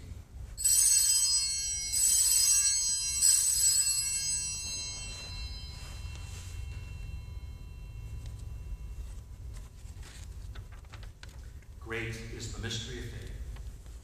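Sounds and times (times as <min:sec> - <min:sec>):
altar bells ringing: 0:00.6 - 0:10.5.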